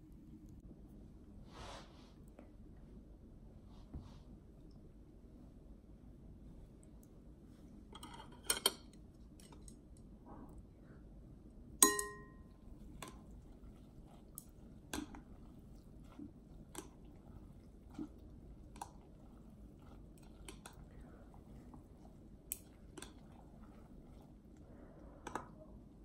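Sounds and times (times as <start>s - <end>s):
chopsticks clinking on glass bowl: 11.8s - 12.5s.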